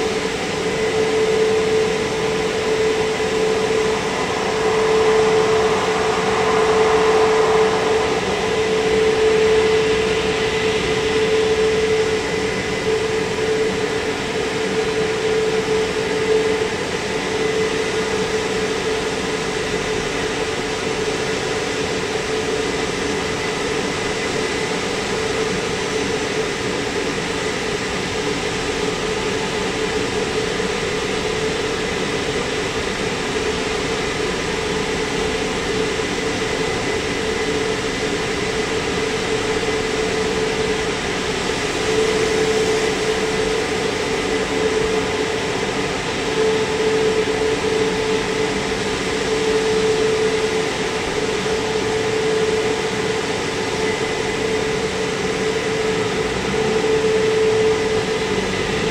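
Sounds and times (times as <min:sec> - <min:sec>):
drying blowers rushing: 0:00.0 - 0:20.2
blower hum: 0:00.0 - 0:58.9
faint high whine: 0:00.0 - 0:58.9.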